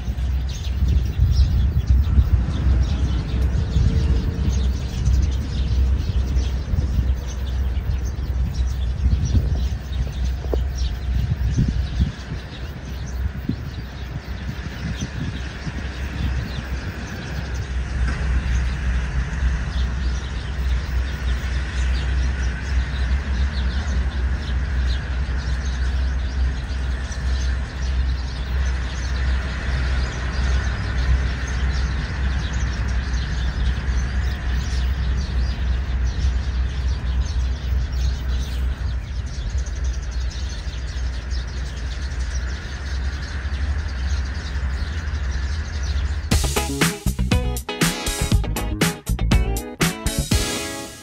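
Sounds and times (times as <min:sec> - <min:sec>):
steady low rumble: 0:00.0 - 0:51.0.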